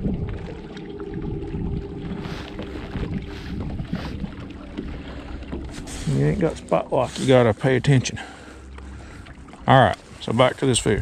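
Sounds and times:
electric trolling motor whine: 0:00.0 - 0:06.7
wind buffeting microphone: 0:00.0 - 0:07.5
water lapping at hull: 0:00.0 - 0:11.0.

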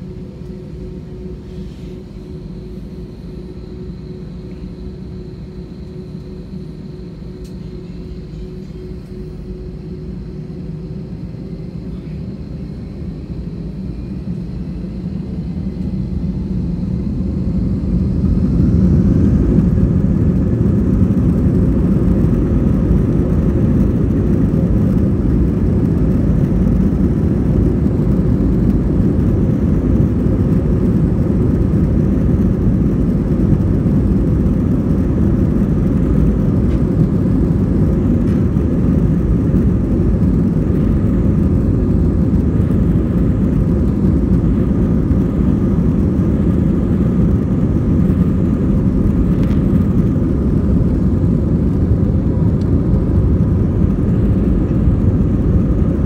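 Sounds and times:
jet engines spooling up: 0:00.0 - 0:56.0
runway rumble: 0:17.6 - 0:56.0.

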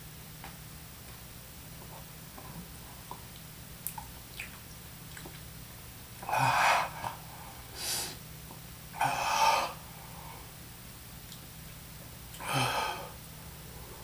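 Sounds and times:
man breathing hard: 0:06.2 - 0:08.2, 0:12.4 - 0:14.0.

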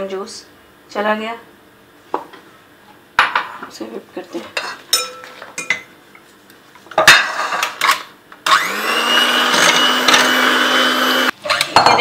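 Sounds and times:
electric mixer whipping cream: 0:08.4 - 0:11.3.

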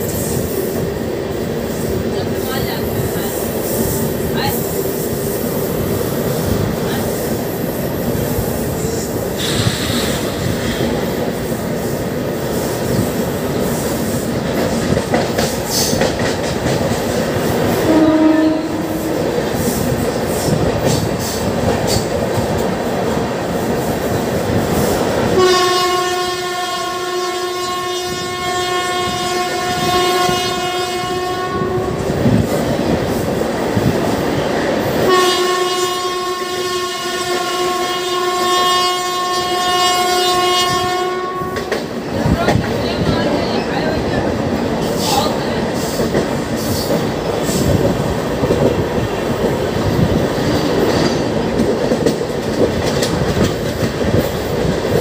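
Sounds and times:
train wheels clacking on rails: 0:00.0 - 0:26.0, 0:41.4 - 0:55.0
train horn blasts: 0:17.8 - 0:19.3, 0:25.3 - 0:32.1, 0:35.0 - 0:41.8.

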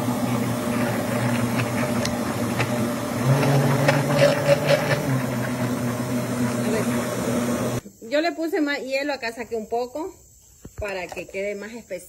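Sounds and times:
blender motor running: 0:00.0 - 0:07.8.

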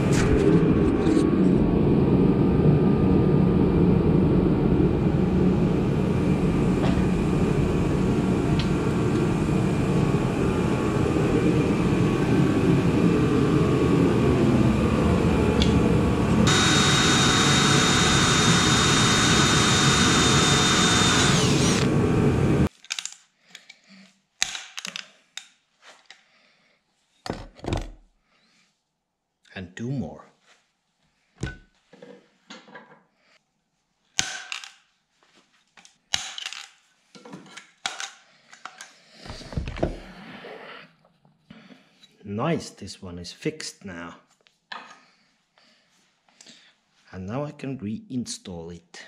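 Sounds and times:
power tool whine: 0:00.0 - 0:22.7
workshop roar: 0:00.0 - 0:22.7.

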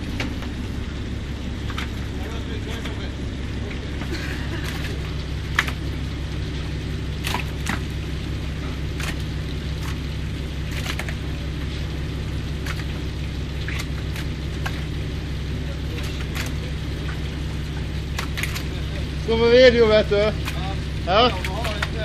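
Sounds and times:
boat engine humming: 0:00.0 - 0:22.0
fish slapping into plastic box: 0:04.6 - 0:05.9, 0:07.2 - 0:07.9, 0:09.0 - 0:10.1, 0:10.7 - 0:11.2, 0:12.6 - 0:13.0, 0:13.7 - 0:14.9, 0:16.0 - 0:16.6, 0:18.1 - 0:18.8, 0:21.4 - 0:22.0.

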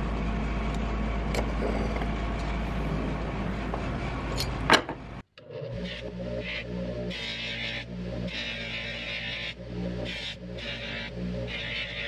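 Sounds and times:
low hum and rushing noise: 0:00.0 - 0:05.3.

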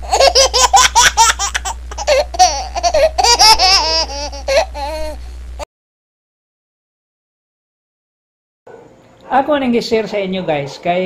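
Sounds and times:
high-pitched laughter: 0:00.0 - 0:05.2.

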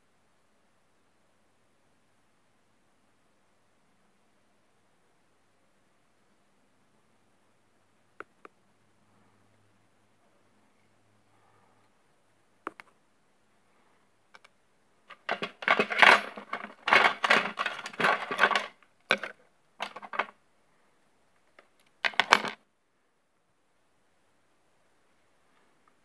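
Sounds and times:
small metal objects clinking: 0:15.1 - 0:20.3.

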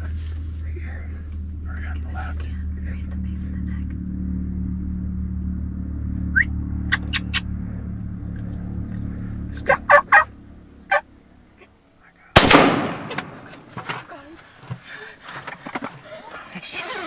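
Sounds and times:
low steady hum: 0:00.0 - 0:17.0
young turkeys calling: 0:06.9 - 0:07.5, 0:08.8 - 0:11.7
shotgun shot: 0:12.4 - 0:13.7.

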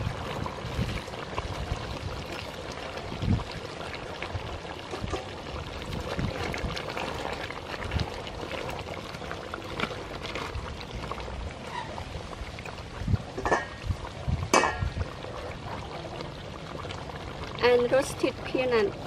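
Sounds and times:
curry bubbling and sloshing: 0:00.0 - 0:19.0.

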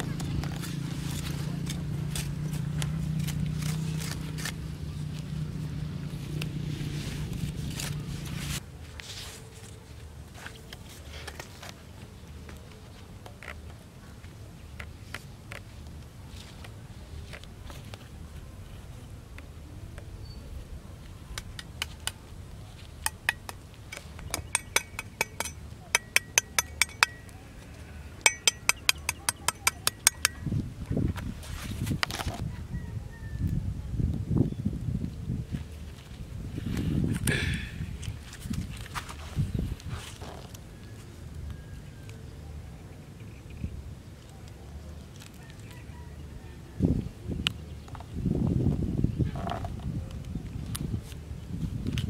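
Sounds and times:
knife scraping dry soil: 0:00.4 - 0:04.8, 0:21.6 - 0:27.3, 0:28.2 - 0:30.6
cleaver chopping with clinks: 0:23.1 - 0:27.3, 0:28.3 - 0:30.5.

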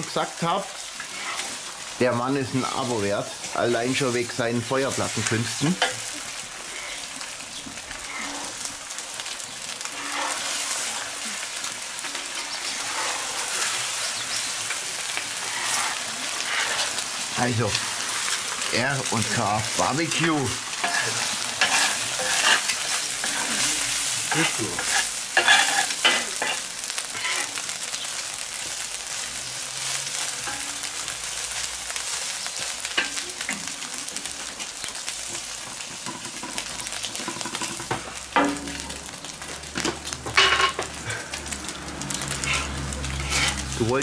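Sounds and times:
egg sizzling on hot plate: 0:00.0 - 0:44.0
metal spatula scraping: 0:01.0 - 0:01.8, 0:04.8 - 0:27.6, 0:42.3 - 0:43.8.

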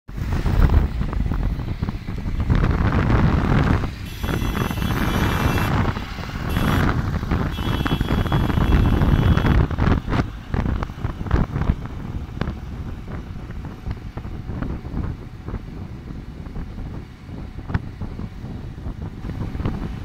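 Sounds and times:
road traffic noise: 0:00.1 - 0:20.0
wind buffeting microphone: 0:00.1 - 0:20.0
high-pitched whine: 0:04.0 - 0:05.8.

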